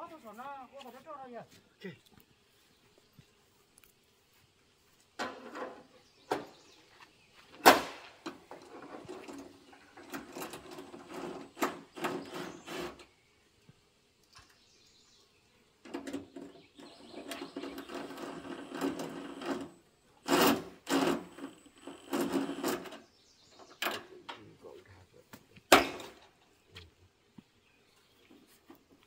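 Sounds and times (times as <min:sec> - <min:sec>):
cordless drill driving screws: 0:10.0 - 0:13.1, 0:17.0 - 0:23.0.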